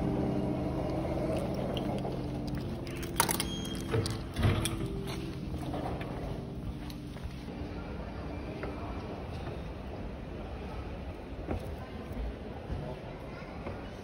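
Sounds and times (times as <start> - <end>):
mechanical hum: 0.0 - 14.0.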